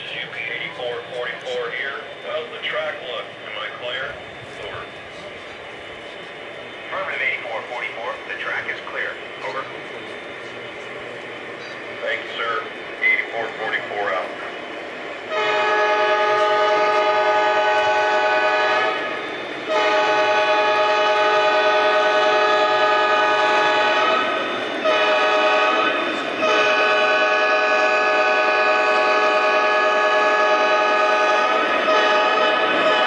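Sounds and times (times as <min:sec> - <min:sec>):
model train running noise: 0:00.0 - 0:33.0
model diesel horn blasts: 0:15.3 - 0:19.1, 0:19.7 - 0:25.8, 0:26.4 - 0:33.0.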